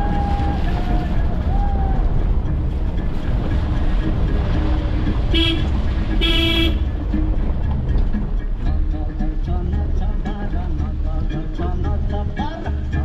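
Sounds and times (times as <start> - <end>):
vehicle rumbling on dirt road: 0.0 - 13.0
car horn honks: 5.3 - 6.9.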